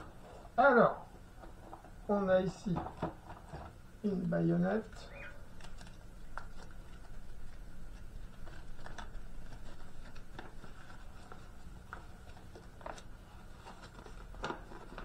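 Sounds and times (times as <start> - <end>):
packaging rustling: 5.3 - 15.0.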